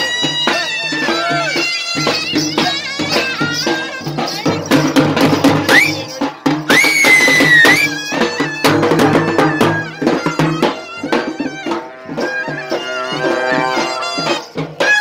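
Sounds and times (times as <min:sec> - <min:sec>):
hand-drum beats: 0:00.0 - 0:15.0
double-reed pipe melody: 0:06.7 - 0:15.0.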